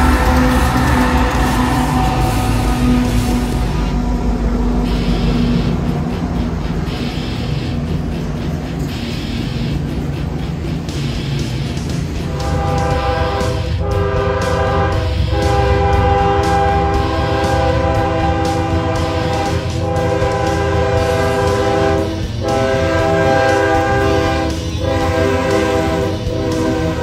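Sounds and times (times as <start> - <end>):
locomotive air horn blasts: 0.0 - 5.9, 12.2 - 27.0
diesel engine rumble: 0.0 - 27.0
train passing: 0.0 - 27.0.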